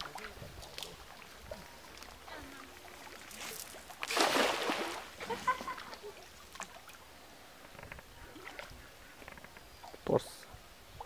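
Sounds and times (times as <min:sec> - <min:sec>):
net splashing on water: 0:03.3 - 0:05.8
faint rustles and clicks: 0:07.6 - 0:10.0.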